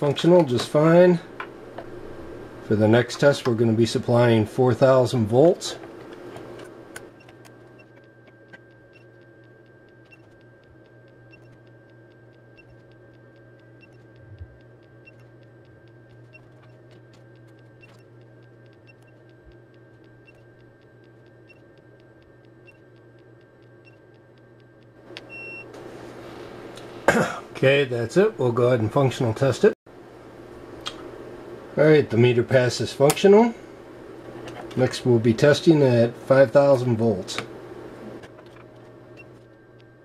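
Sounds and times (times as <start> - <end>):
faint high whine: 0.0 - 40.0
low electrical hum: 0.0 - 40.0
faint ticking: 6.9 - 25.7.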